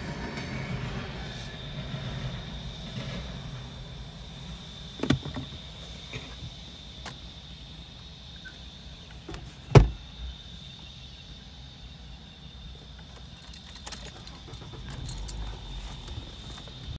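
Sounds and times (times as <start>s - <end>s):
low steady rumble: 0.0s - 16.9s
sharp thump: 9.7s - 10.0s
light clicking and rattling: 13.0s - 16.8s.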